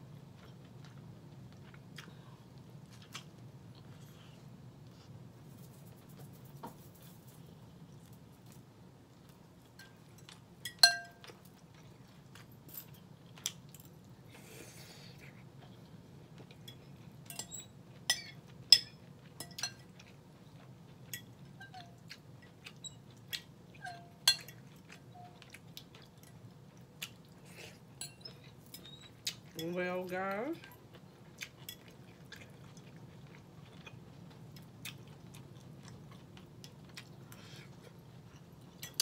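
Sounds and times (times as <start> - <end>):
chewing and eating: 0.0 - 39.0
fork clinking against glass bowl: 9.8 - 11.4, 16.7 - 20.1, 23.8 - 25.4, 28.0 - 28.9.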